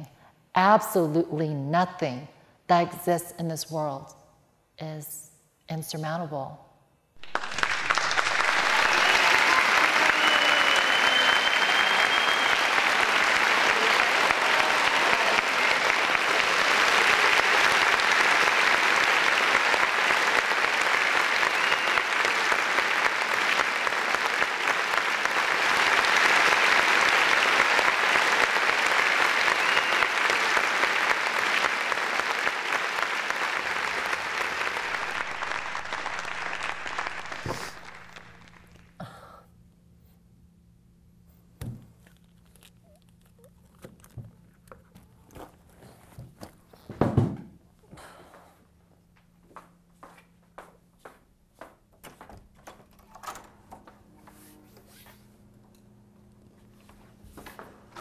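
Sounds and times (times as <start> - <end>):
audience applauding: 7.2 - 39.1.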